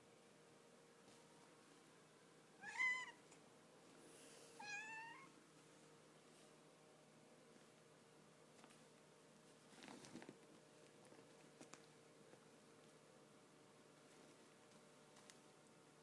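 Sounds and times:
cat meowing: 2.6s - 3.2s, 4.6s - 5.3s.

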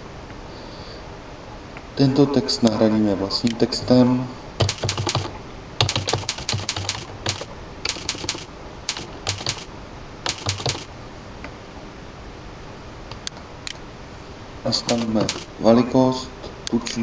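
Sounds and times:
typing on computer keyboard: 4.6s - 10.9s, 14.8s - 15.6s.

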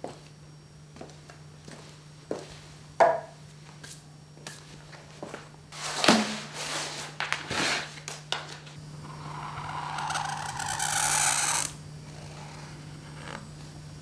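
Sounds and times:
paper rustling and sliding: 5.8s - 11.7s
steady low hum: 7.9s - 14.0s.

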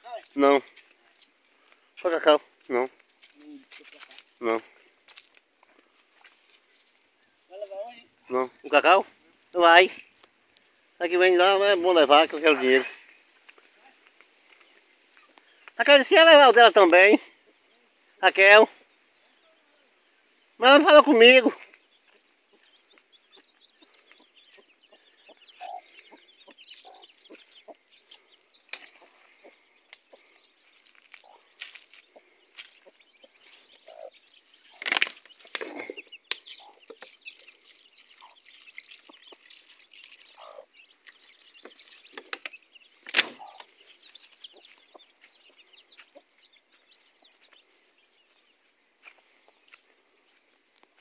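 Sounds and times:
chickens clucking: 22.1s - 51.0s.

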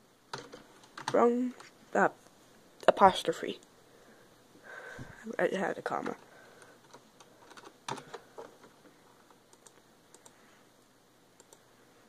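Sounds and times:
computer keyboard typing: 0.3s - 1.7s, 5.9s - 8.8s, 9.5s - 10.4s.

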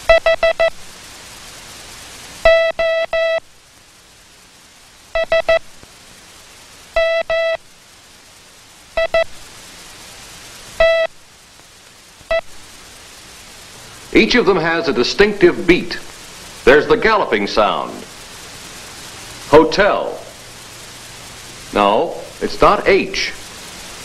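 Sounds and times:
morse code buzzy tone: 0.0s - 0.8s, 2.4s - 3.4s, 5.1s - 5.6s, 7.0s - 7.6s, 9.0s - 9.3s, 10.8s - 11.1s.

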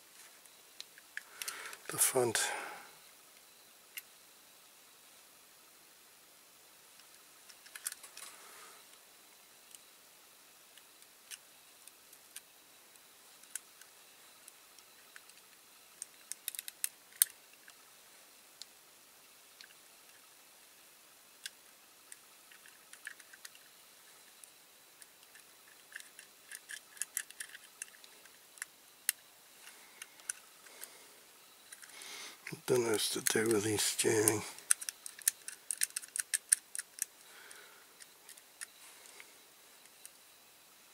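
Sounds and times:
toy parts clicking: 7.0s - 8.3s, 13.4s - 17.8s, 21.4s - 23.7s, 25.0s - 29.2s, 30.0s - 30.5s, 31.7s - 31.9s, 32.5s - 37.2s, 38.0s - 38.8s.

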